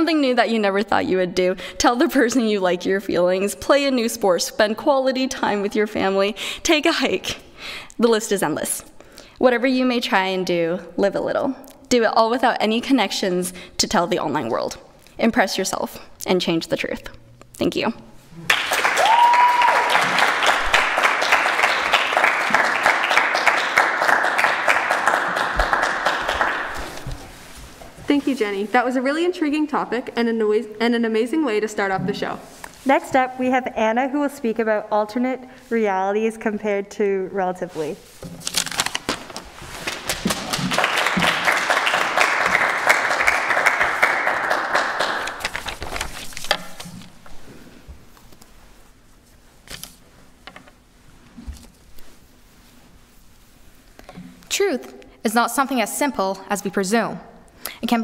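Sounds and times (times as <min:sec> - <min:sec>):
audience applauding: 0:18.4 - 0:27.1, 0:39.8 - 0:45.7.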